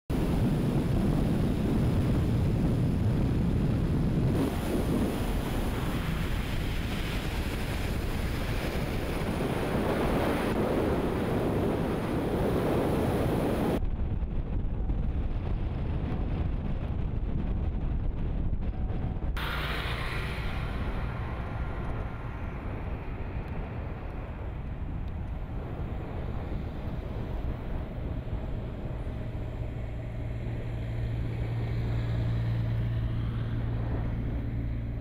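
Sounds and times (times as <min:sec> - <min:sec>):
wind buffeting the microphone: 0:00.1 - 0:35.0.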